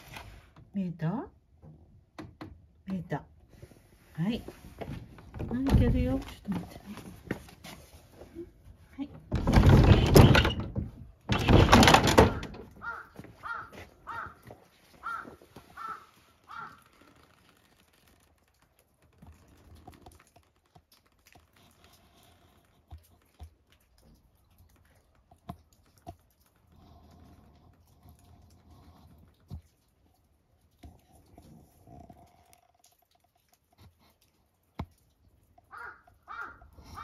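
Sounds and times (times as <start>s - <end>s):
wooden sliding door rattling: 5.1s - 6.3s, 9.2s - 12.9s
crow cawing: 12.8s - 14.4s, 15.0s - 16.9s, 35.7s - 37.0s.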